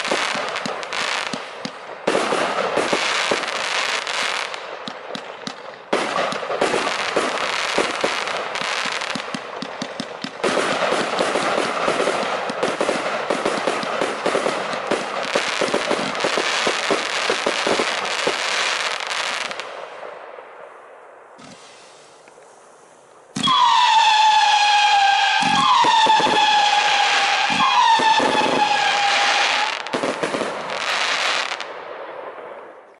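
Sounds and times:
firework cake crackling: 0:00.0 - 0:20.2, 0:21.3 - 0:31.7
howling firework whistles: 0:21.4 - 0:30.0.

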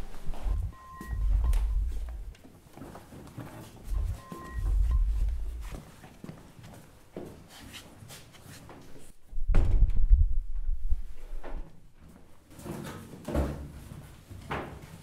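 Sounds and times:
loud deep thud: 0:00.4 - 0:02.3, 0:09.4 - 0:10.3.

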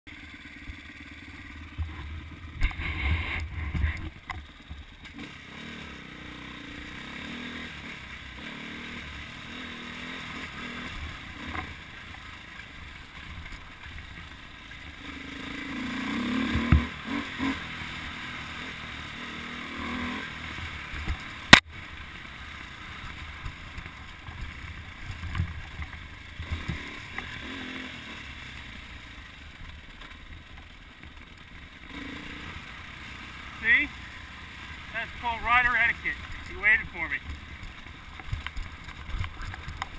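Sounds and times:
dirt bike engine revving: 0:00.1 - 0:39.9
sharp crack: 0:21.0 - 0:21.8.

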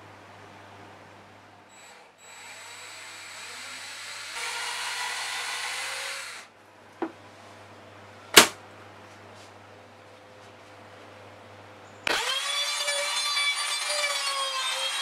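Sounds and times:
cordless drill boring wood: 0:01.8 - 0:06.5, 0:12.1 - 0:15.0
loud knock: 0:08.4 - 0:08.6.

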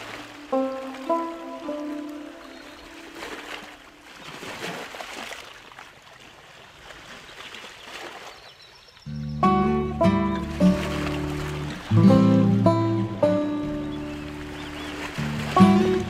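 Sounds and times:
relaxing instrumental music: 0:00.0 - 0:04.0, 0:09.1 - 0:16.0
soft rushing water: 0:00.0 - 0:09.1, 0:10.0 - 0:16.0.

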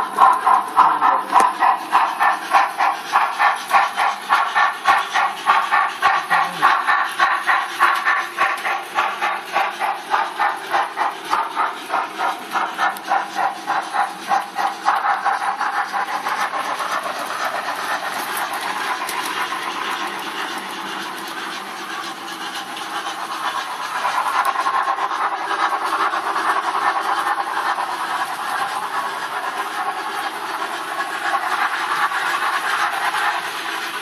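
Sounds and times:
model steam locomotive chuffing: 0:00.0 - 0:34.0
steam hiss: 0:00.0 - 0:34.0.

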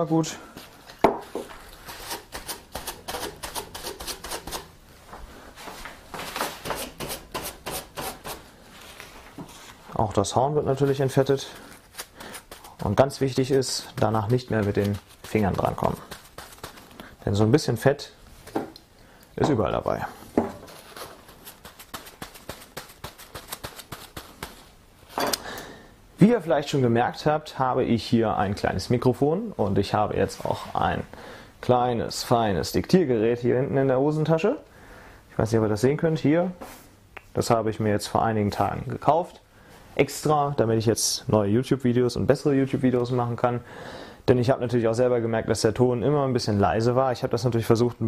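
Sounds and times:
cloth scrubbing horn: 0:10.7 - 0:17.0, 0:20.7 - 0:24.7.

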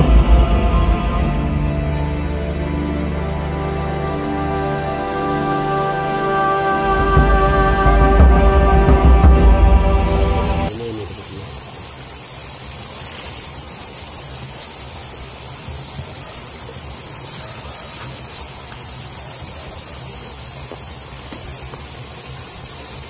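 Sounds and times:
stream water rushing: 0:07.8 - 0:23.0.

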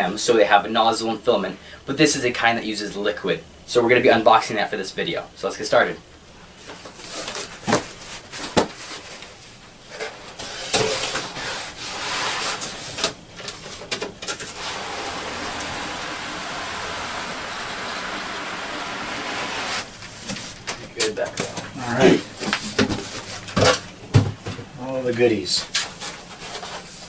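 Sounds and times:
cardboard rubbing: 0:11.3 - 0:13.1, 0:14.4 - 0:23.8.

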